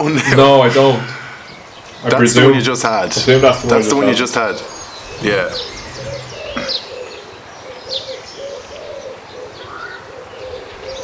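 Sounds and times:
small birds chirping: 0.0s - 11.0s
pigeon cooing: 3.1s - 11.0s.

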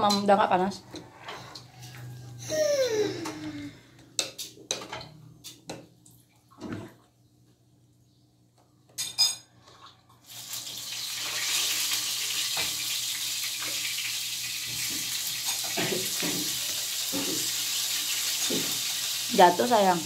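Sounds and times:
dishes and cutlery clinking: 4.2s - 5.8s, 8.9s - 9.8s, 14.8s - 17.6s.

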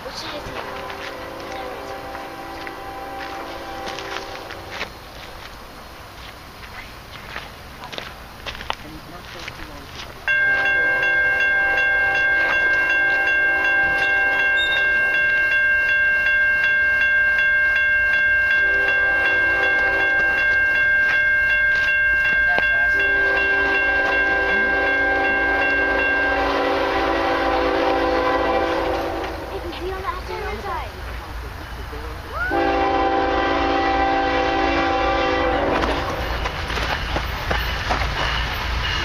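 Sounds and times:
railroad crossing bell ringing: 0.0s - 6.0s, 8.6s - 39.0s
train horn blasts: 0.2s - 4.8s, 10.4s - 15.3s, 18.5s - 20.5s, 22.5s - 29.6s, 32.5s - 36.4s.

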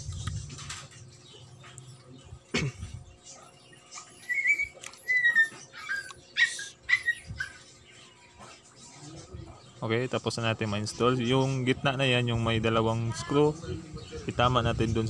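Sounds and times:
animal whimpering: 4.1s - 9.1s.

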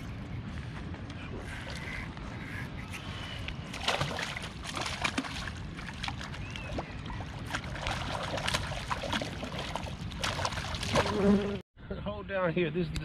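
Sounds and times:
fish thrashing and splashing: 3.6s - 11.2s.

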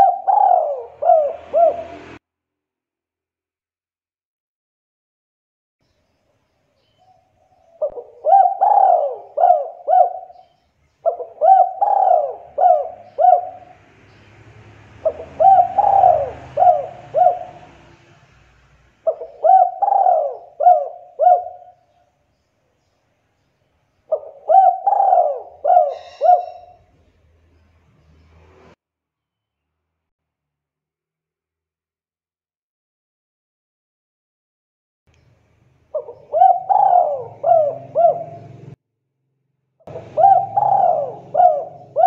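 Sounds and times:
dove cooing: 0.0s - 2.2s, 7.5s - 13.8s, 15.0s - 18.0s, 19.0s - 21.9s, 24.1s - 26.9s, 35.9s - 38.8s, 39.9s - 42.0s.

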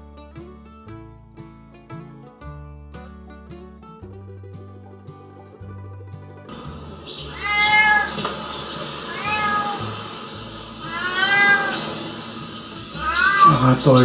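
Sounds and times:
plucked-string background music: 0.0s - 14.0s
cat meowing: 7.1s - 8.3s, 9.0s - 10.0s, 10.8s - 14.0s.

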